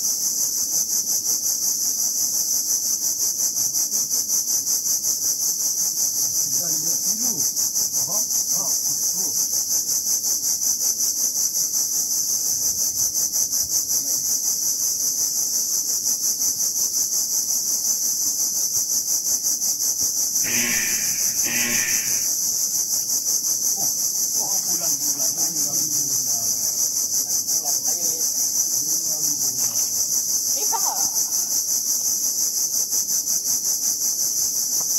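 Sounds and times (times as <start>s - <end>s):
cicada chorus: 0.0s - 34.9s
short harsh calls: 20.4s - 22.4s.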